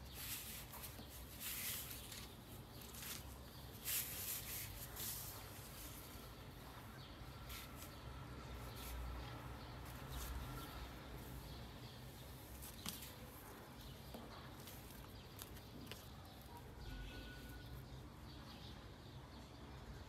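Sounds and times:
rustling and crinkling packaging: 0.0 - 6.8.

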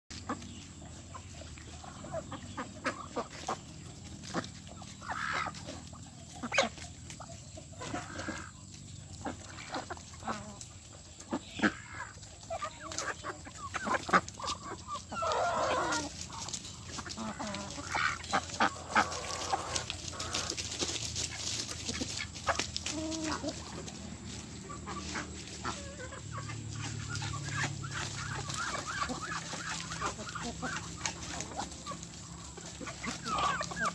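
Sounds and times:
birds pecking in dry leaves: 0.1 - 33.9
chickens clucking: 0.1 - 33.9.

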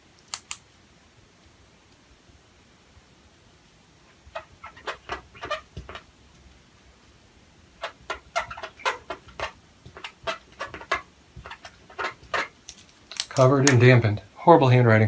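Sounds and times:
faint fan hum: 0.0 - 15.0
pen scratching on paper: 4.3 - 6.1, 7.8 - 12.6.

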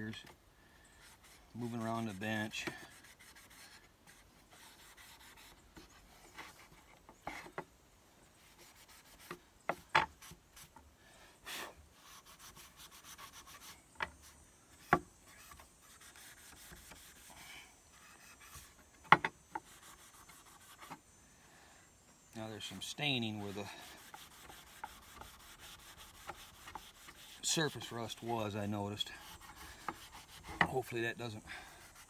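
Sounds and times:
steel wool scrubbing metal: 22.5 - 32.0.

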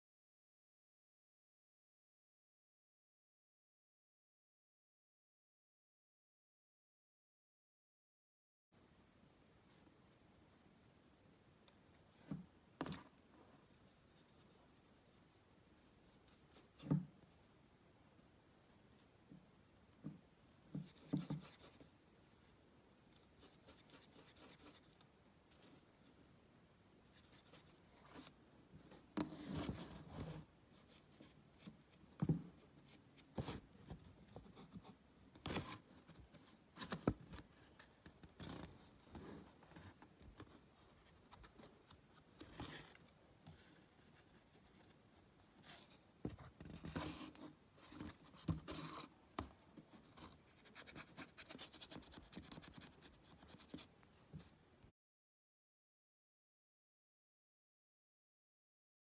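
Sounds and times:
fingers rubbing modelling clay: 20.8 - 21.9, 29.0 - 53.9.

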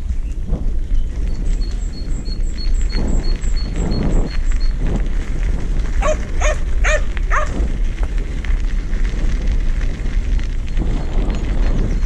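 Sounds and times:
bicycle tyres on gravel: 0.0 - 12.0
wind buffeting microphone: 0.0 - 12.0
dog barking: 6.0 - 7.6.

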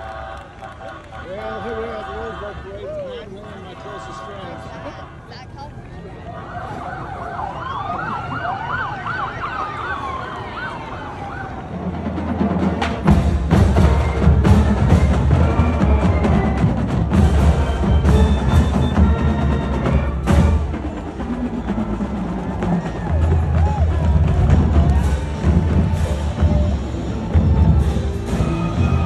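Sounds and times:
sirens yelping: 0.0 - 12.6, 13.5 - 29.0
loud drumming with bass beats: 12.2 - 29.0.

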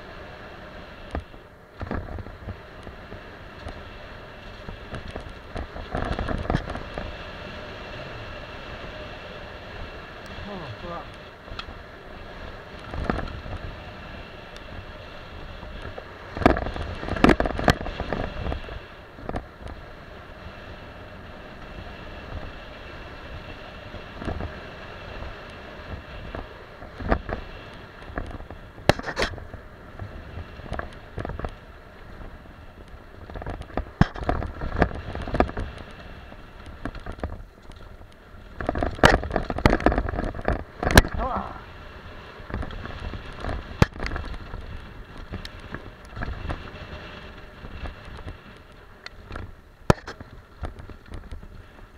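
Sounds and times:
bike tyres rumbling on dirt: 0.0 - 51.9
bike clattering over bumps: 1.1 - 7.3, 11.1 - 20.8, 21.5 - 51.9.

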